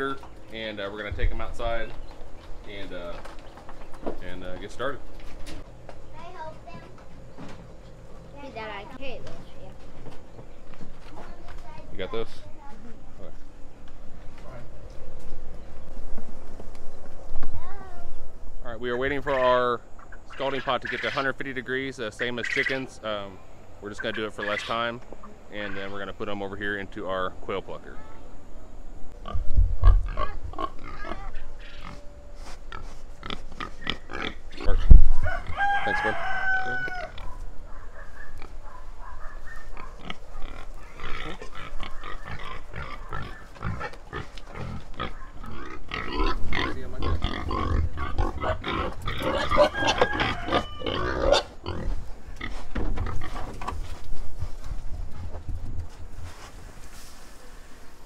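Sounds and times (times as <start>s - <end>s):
pigs grunting and squealing: 29.2s - 32.0s, 32.7s - 37.4s, 39.6s - 53.5s.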